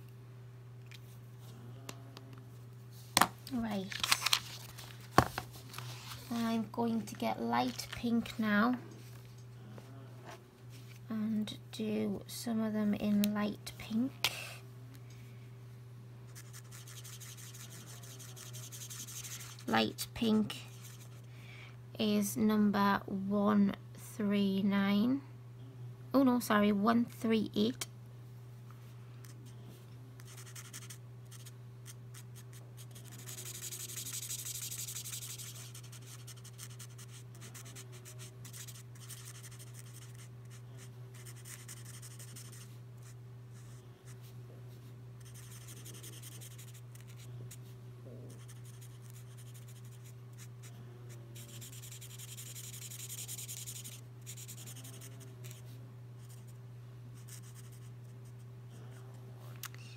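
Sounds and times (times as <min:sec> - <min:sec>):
steady low hum: 0:00.0 - 0:59.9
marker scratching across paper: 0:16.4 - 0:19.7, 0:30.3 - 0:31.5, 0:32.1 - 0:43.8, 0:45.2 - 0:47.3, 0:48.3 - 0:50.7, 0:51.4 - 0:55.6.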